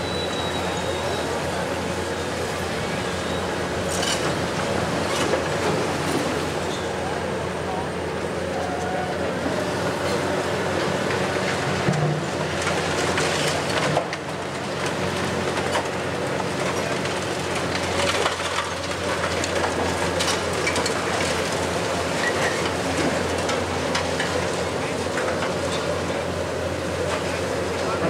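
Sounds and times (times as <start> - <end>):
excavator engine drone: 0.0 - 28.0
concrete cracking and rubble clattering: 16.5 - 24.4.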